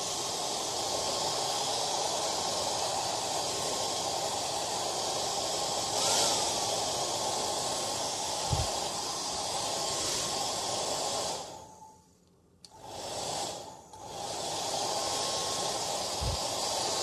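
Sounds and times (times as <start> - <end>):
hair dryer blowing: 0.0 - 11.7, 12.7 - 17.0.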